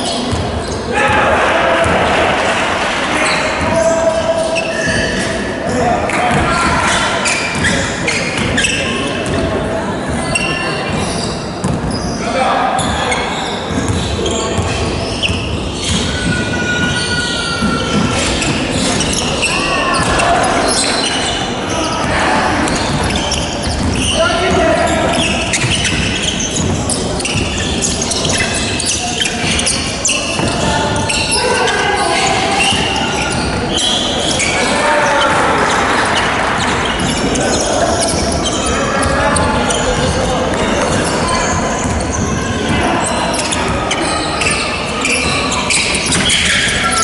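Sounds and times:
sneakers squeaking: 0.0s - 47.0s
basketball bouncing: 11.6s - 11.9s, 21.8s - 31.2s, 32.6s - 33.6s.

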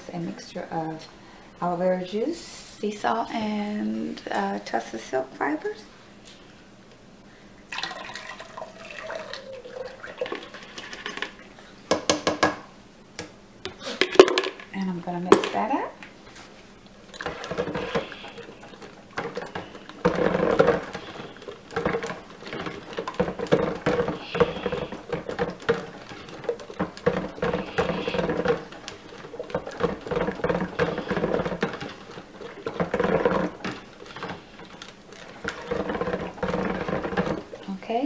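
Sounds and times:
immersion blender motor: 27.0s - 28.6s.

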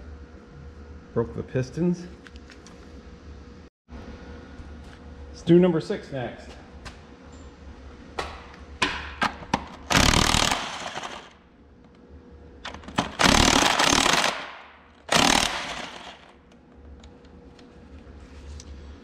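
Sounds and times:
impact wrench bursts: 9.8s - 11.4s, 12.7s - 16.4s.

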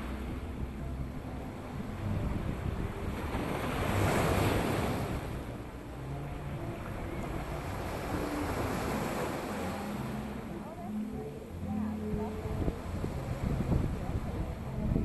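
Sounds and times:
wind buffeting microphone: 0.0s - 8.4s, 11.5s - 15.0s
ocean surf breaking over rocks: 1.8s - 15.0s.

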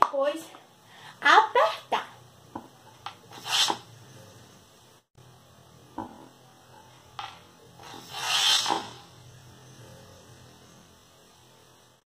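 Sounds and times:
low steady hum: 8.8s - 12.0s.

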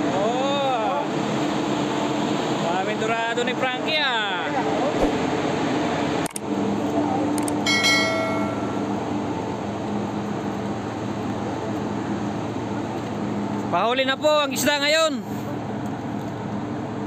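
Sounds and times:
ship machinery hum: 1.0s - 13.7s
short metallic ring: 7.6s - 9.0s.

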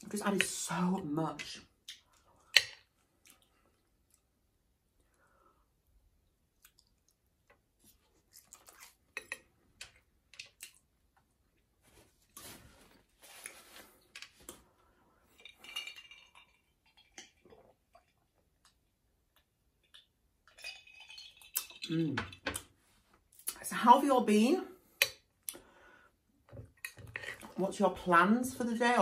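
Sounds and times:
chewing: 3.2s - 4.3s, 7.9s - 9.5s.

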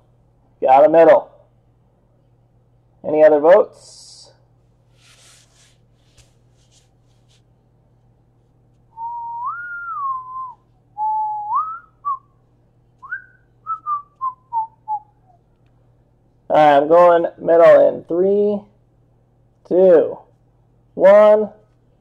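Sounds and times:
soft handling noises: 4.5s - 8.9s
person whistling a tune: 9.0s - 12.3s, 13.0s - 15.1s.

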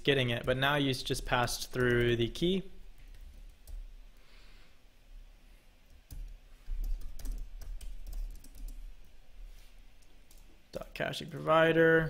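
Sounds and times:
typing on computer keyboard: 1.5s - 2.2s, 6.1s - 8.9s.

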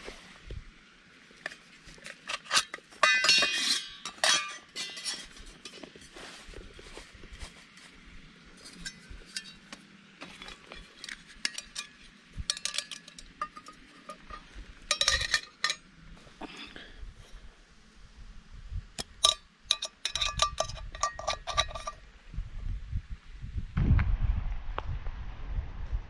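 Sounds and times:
metal cookware clinking and scraping: 2.0s - 6.3s, 8.6s - 15.8s, 19.2s - 22.0s
metal ringing clanks: 2.3s - 6.0s, 8.6s - 9.7s, 10.3s - 15.9s, 19.0s - 22.0s.

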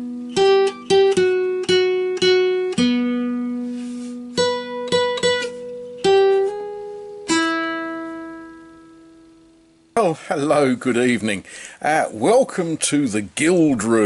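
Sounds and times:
guitar notes plucked slowly: 0.0s - 10.0s.

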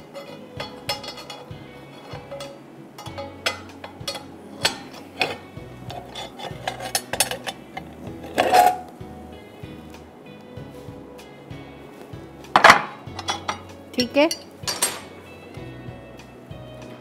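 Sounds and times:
metal plate clanking on grate: 0.0s - 8.9s, 12.6s - 15.2s
faint background music: 0.0s - 17.0s.

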